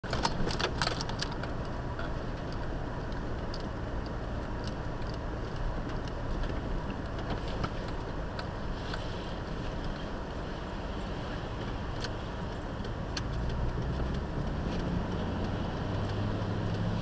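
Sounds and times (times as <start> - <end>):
car engine rumble: 0.0 - 17.0
light ticks and rattles: 0.1 - 10.5.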